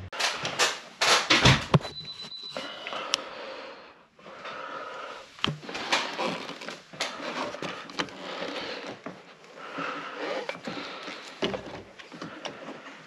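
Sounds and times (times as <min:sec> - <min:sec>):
tool knocks and clicks: 0:00.1 - 0:02.0
rustling and scraping: 0:05.3 - 0:13.0.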